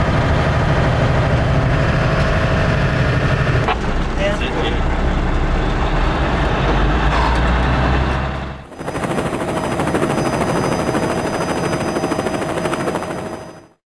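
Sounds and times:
truck engine rumbling: 0.0s - 11.8s
high ringing tones: 8.8s - 13.8s.

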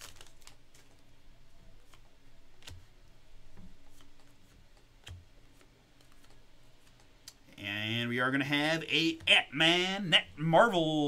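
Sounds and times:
trading cards flipped by hand: 1.8s - 2.9s, 3.6s - 7.4s.

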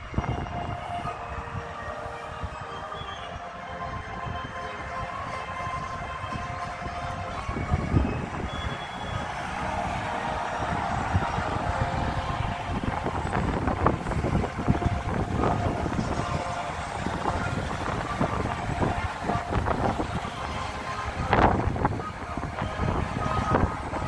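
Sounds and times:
wind buffeting microphone: 0.0s - 24.0s
cars passing: 5.1s - 24.0s.

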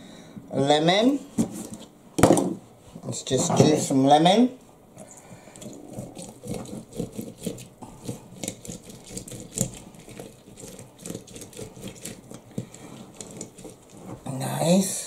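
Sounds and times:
lemon scraping on hand juicer: 5.3s - 14.3s.

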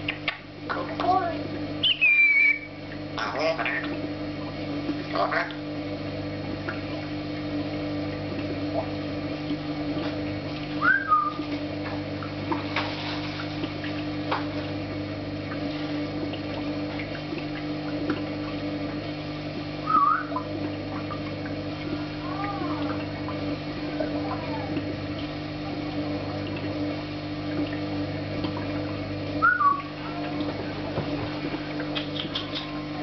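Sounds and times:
steady low hum: 0.0s - 33.0s
parrot whistling: 1.8s - 3.8s, 10.8s - 11.4s, 19.8s - 20.4s, 29.4s - 29.9s.

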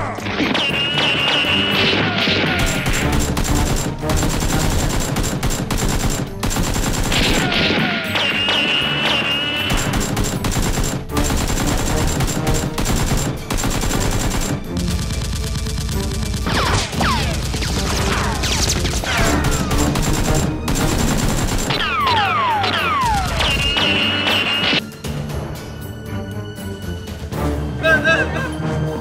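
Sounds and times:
machine-gun fire: 0.4s - 22.2s, 22.9s - 24.6s.

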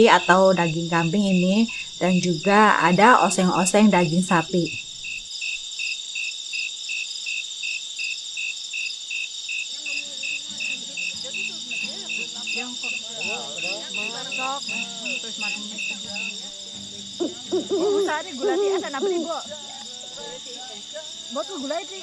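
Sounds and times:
cricket chirping: 0.0s - 22.0s
insects shrilling: 0.0s - 22.0s
acoustic guitar played quietly: 9.8s - 22.0s.

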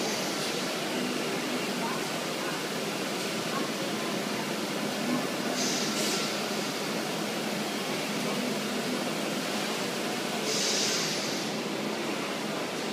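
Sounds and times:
machine hum and hiss: 0.0s - 12.9s
brief high hiss: 10.5s - 11.4s.

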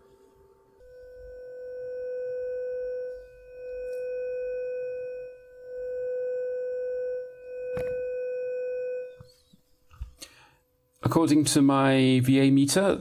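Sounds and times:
steady mid-pitched test tone: 0.0s - 9.4s.

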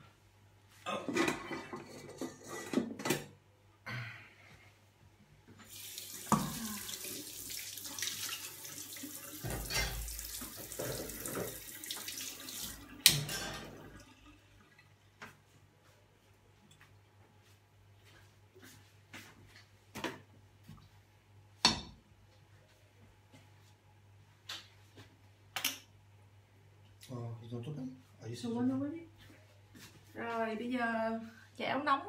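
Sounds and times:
tap running into sink: 9.4s - 13.4s.

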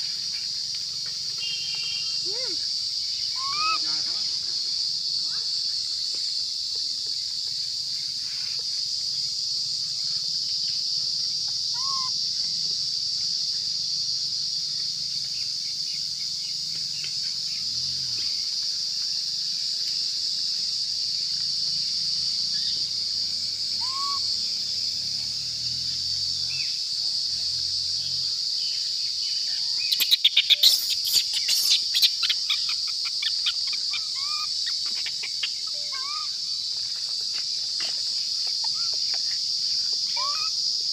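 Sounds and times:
insect chorus drone: 0.0s - 40.9s
bird chirps: 3.1s - 3.8s, 11.5s - 12.1s, 23.8s - 24.2s, 29.2s - 36.4s, 40.1s - 40.5s.

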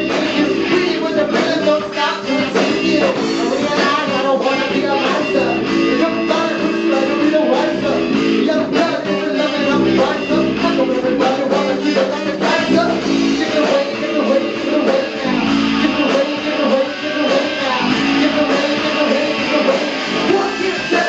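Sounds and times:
electric bass guitar: 0.0s - 21.0s
loud live rock music: 0.0s - 21.0s.

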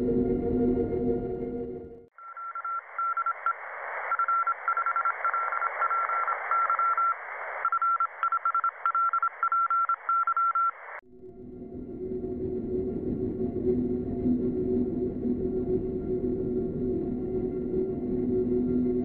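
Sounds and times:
morse code beeps: 2.2s - 10.8s
radio static hiss: 2.2s - 11.0s.

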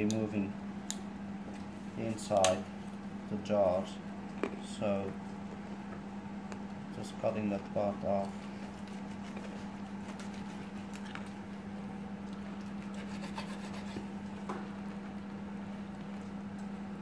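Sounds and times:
knife slicing and scraping fish: 8.3s - 11.2s, 12.7s - 14.1s.

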